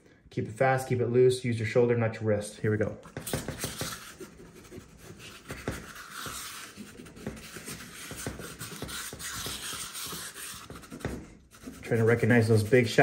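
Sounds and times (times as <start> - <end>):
charcoal scratching on paper: 3.1 - 13.0.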